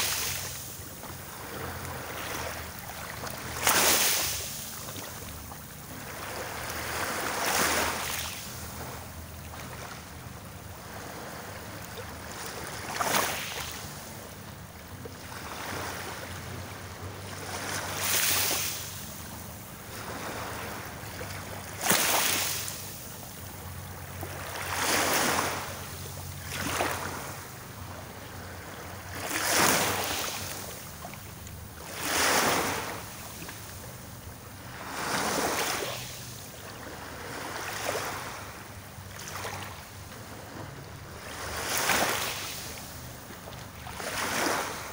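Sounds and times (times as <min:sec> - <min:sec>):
low steady rumble: 0:00.0 - 0:44.9
small waves washing ashore: 0:00.0 - 0:44.9.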